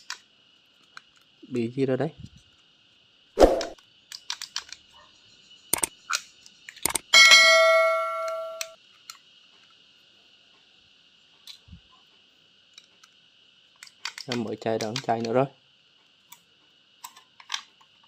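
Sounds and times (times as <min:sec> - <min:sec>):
metal object ringing clang: 0:07.2 - 0:08.8.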